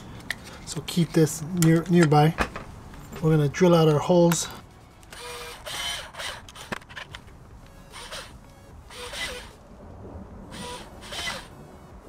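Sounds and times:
power drill boring: 0:05.1 - 0:06.7, 0:07.9 - 0:09.6, 0:10.5 - 0:11.5.

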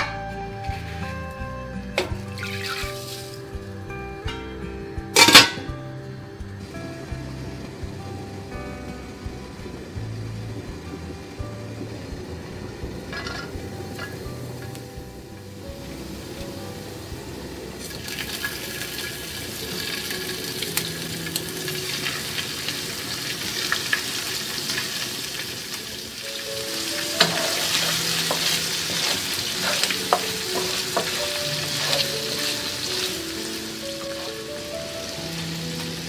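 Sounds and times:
prawns sizzling in oil: 0:00.4 - 0:04.2, 0:05.0 - 0:36.0
utensil clacking against pan: 0:27.2 - 0:33.1.

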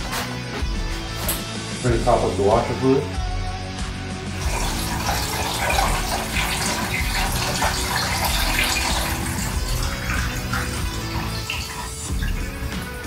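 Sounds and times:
fluid pouring from plastic jug: 0:04.4 - 0:13.0.

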